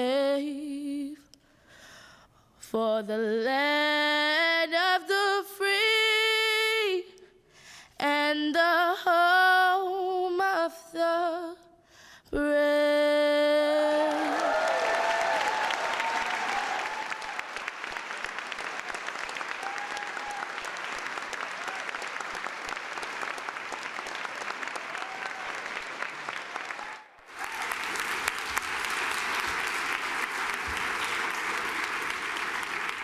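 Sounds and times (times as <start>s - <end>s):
audience applauding: 14.0s - 33.0s.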